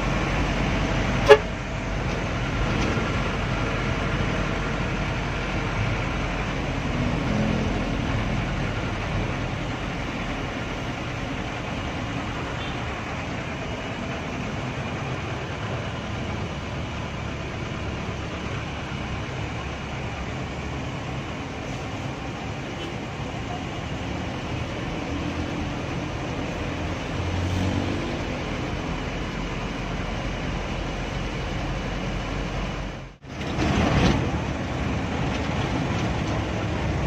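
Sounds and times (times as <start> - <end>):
bus engine and road noise: 0.0 - 37.0
horn toot: 1.2 - 1.5.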